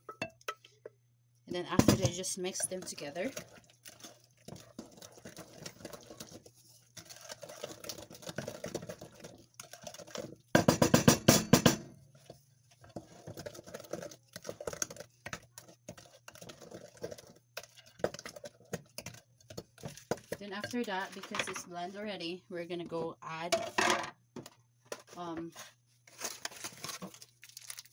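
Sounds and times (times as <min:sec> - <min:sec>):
spoon stirring dough in glass bowl: 0:01.9 - 0:11.1, 0:12.1 - 0:21.5
fast beating of dough: 0:07.1 - 0:11.9.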